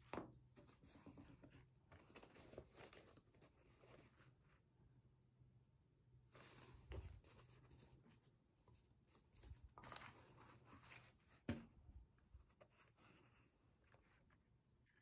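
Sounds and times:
cap rustling as handled: 0.1s - 4.6s, 6.3s - 14.4s.

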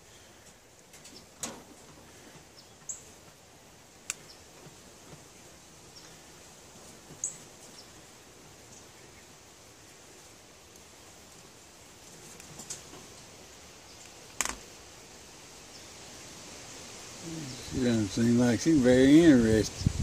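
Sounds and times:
faint outdoor background: 0.0s - 20.0s
rabbit scuffling on wire cage: 0.4s - 13.6s.

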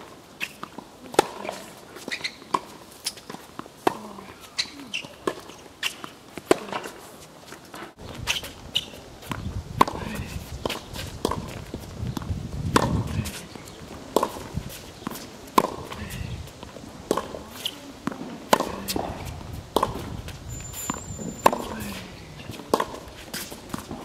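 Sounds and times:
tennis ball struck by racket: 0.4s - 7.0s, 8.2s - 16.2s, 17.1s - 20.1s, 20.9s - 24.0s
footsteps and shoe scuffs: 4.4s - 9.4s, 17.5s - 24.0s
ball bouncing on court: 17.1s - 20.1s.

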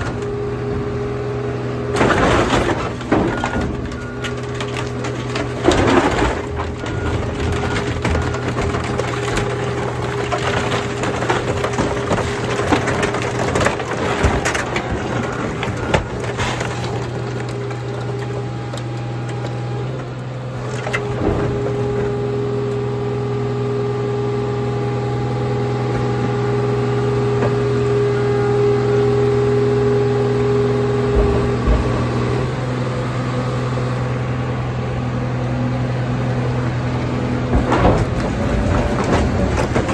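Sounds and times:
sheet metal and glass crunching: 2.0s - 18.5s.

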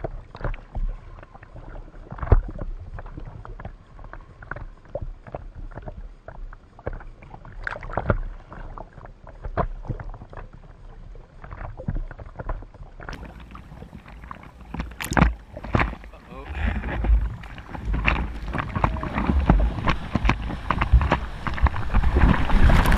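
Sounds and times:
water splashing against camera: 0.0s - 22.9s
low surf rumble: 13.2s - 22.9s.

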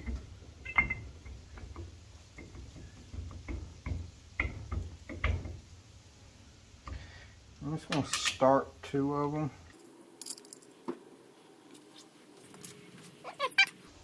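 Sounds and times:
light metal clicks and knocks: 0.0s - 5.6s.

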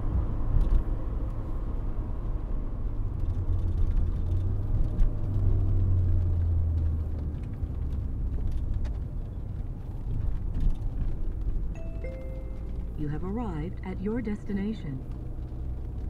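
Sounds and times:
car engine and road noise drone: 0.0s - 16.0s.

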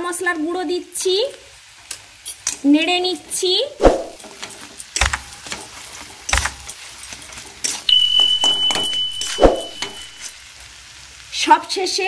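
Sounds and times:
spoon scraping metal pan: 7.6s - 10.3s
steady high-pitched tone: 7.9s - 10.3s.

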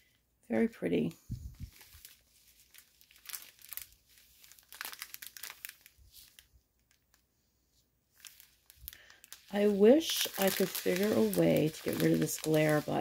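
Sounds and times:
plastic bags crinkling: 1.3s - 7.2s, 8.1s - 13.0s.

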